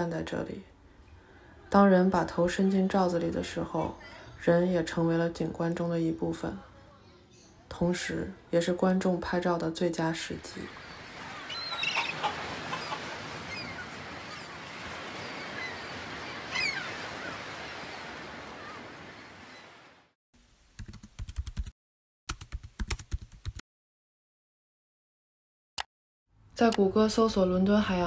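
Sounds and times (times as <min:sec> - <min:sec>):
short squeaky calls: 0:11.3 - 0:14.6
keyboard typing: 0:20.8 - 0:21.7, 0:22.3 - 0:23.6.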